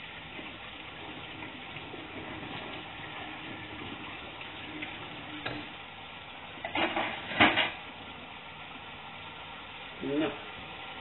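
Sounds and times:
chicken and onion sizzling: 0.0 - 11.0
kitchenware clattering knocks: 6.7 - 7.8.

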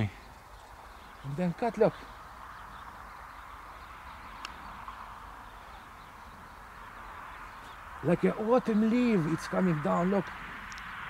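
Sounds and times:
outdoor background hiss: 0.0 - 11.0.

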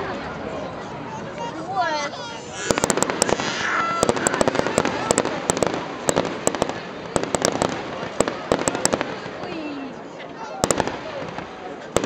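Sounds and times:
fireworks bangs and crackles: 2.6 - 10.0, 10.6 - 12.0.

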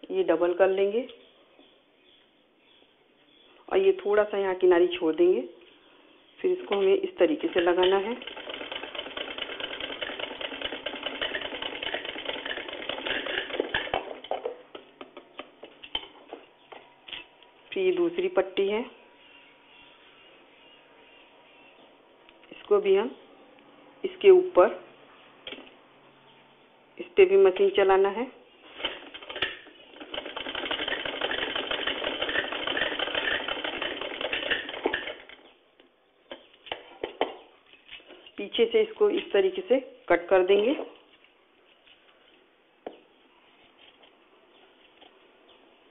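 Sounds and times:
sewing machine rattling: 7.4 - 14.2, 28.8 - 35.4.

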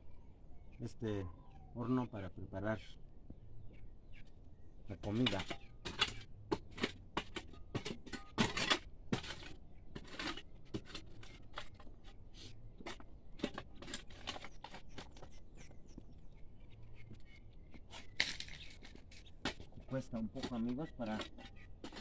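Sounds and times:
soil and small stones rattling: 4.9 - 22.0
tool knocking against stones: 5.0 - 11.9, 18.2 - 22.0
metal tool scraping into soil: 5.0 - 15.2, 17.9 - 22.0.

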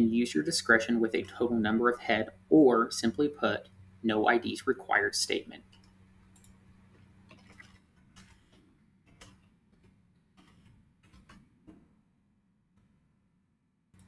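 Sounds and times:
low electrical hum: 0.0 - 14.0
keyboard keystrokes: 7.3 - 11.8.

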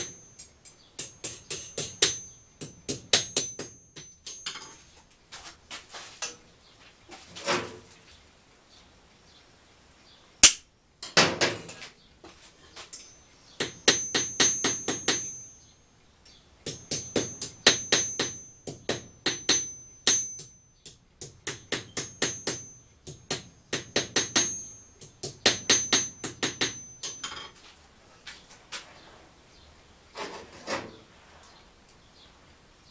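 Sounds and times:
hammer striking steel on anvil: 0.0 - 4.9, 10.4 - 10.6, 12.9 - 15.8, 16.7 - 27.6.

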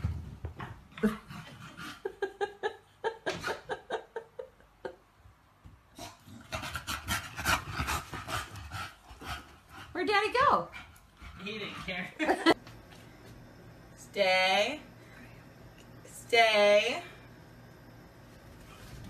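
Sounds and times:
dog panting and snuffling: 6.5 - 10.1.

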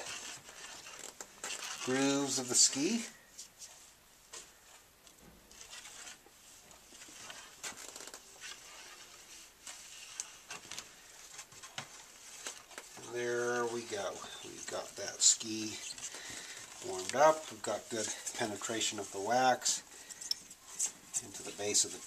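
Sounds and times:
waxing iron rubbing on ski: 0.0 - 4.0, 5.5 - 7.7, 8.3 - 10.5, 12.0 - 19.8, 20.7 - 22.0.

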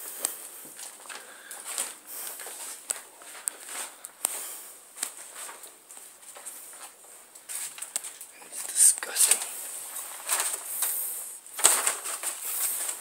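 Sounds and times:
footsteps on bare floor: 0.0 - 8.7
steady hiss: 0.0 - 13.0.

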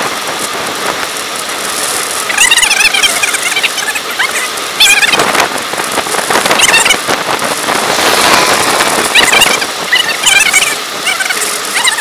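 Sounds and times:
wind and tyres rushing: 0.0 - 12.0
high wavering squeaks: 2.2 - 5.4, 6.5 - 12.0.

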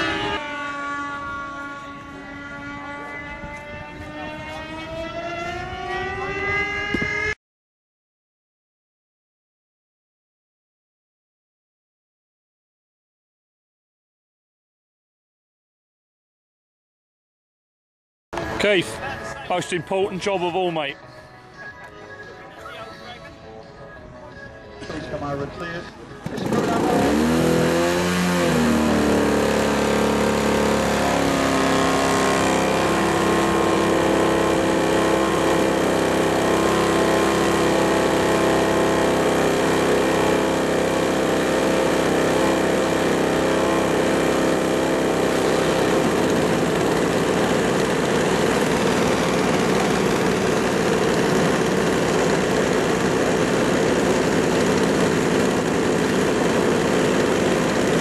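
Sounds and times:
model plane engines running: 0.0 - 7.1, 25.9 - 58.0.

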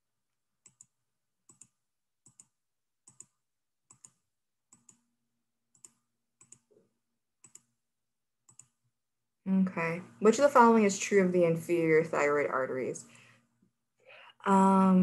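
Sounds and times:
computer mouse clicks: 0.6 - 5.1, 5.7 - 7.8, 8.5 - 8.8.

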